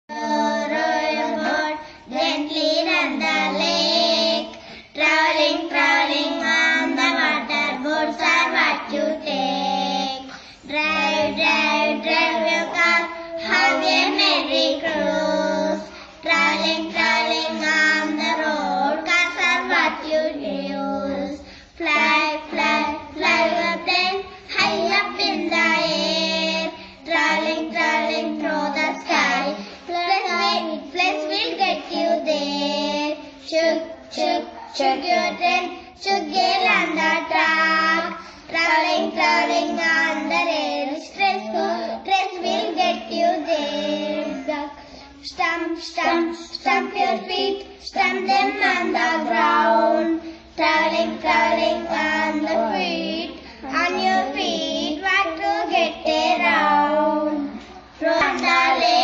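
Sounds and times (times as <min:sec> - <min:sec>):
children singing in unison: 0:00.0 - 0:59.0.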